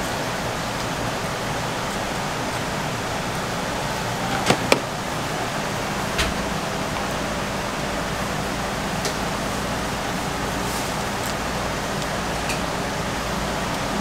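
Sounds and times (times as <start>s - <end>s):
kitchen rushing noise: 4.0s - 5.1s
quick knocks: 4.3s - 4.9s.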